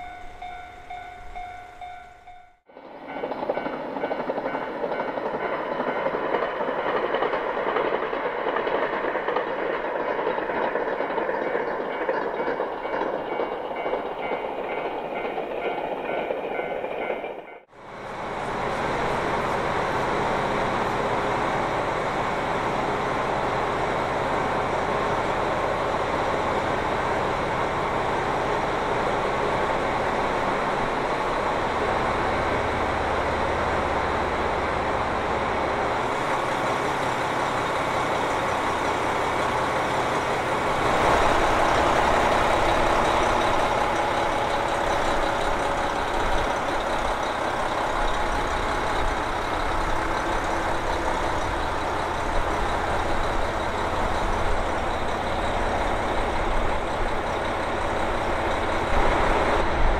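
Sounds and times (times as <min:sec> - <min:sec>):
diesel engine idling: 0:32.0 - 0:59.9.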